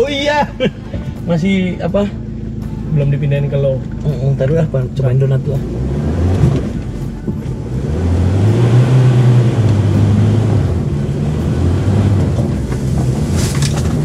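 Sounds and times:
pickup truck engine revving: 5.0 - 14.0.

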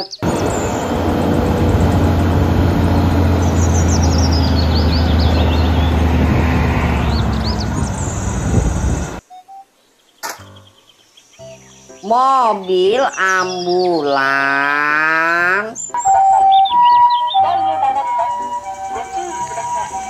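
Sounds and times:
birds chirping: 0.0 - 20.0
diesel truck engine humming: 0.2 - 9.2.

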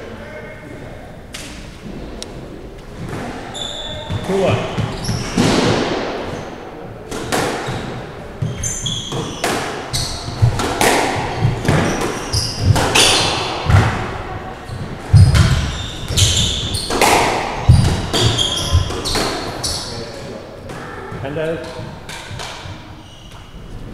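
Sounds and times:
trainers squeaking on wooden floor: 3.0 - 5.7, 7.6 - 20.4, 21.0 - 23.8
squash ball cracking off rackets: 5.2 - 8.0, 9.1 - 14.2, 15.0 - 19.6.

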